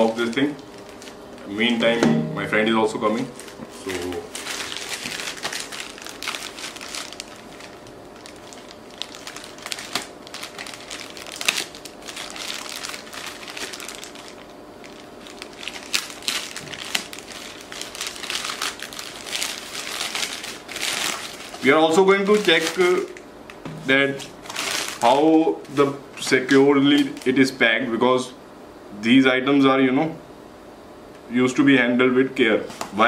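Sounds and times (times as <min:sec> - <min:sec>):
plastic pouch crinkling: 0:00.0 - 0:01.6, 0:03.0 - 0:23.2, 0:24.2 - 0:25.4, 0:26.5 - 0:27.5.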